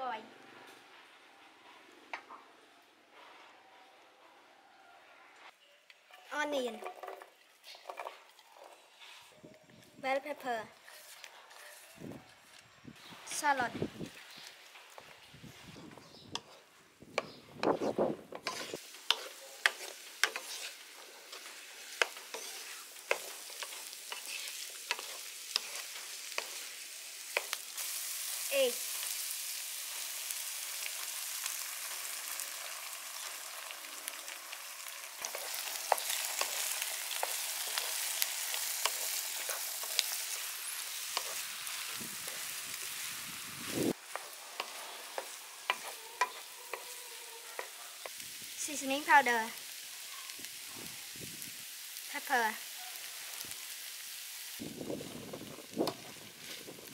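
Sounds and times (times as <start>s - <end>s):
wooden spatula scraping a pan: 10.8s - 12.0s, 14.1s - 26.8s, 44.0s - 48.0s
vegetables sizzling in oil: 12.9s - 56.9s.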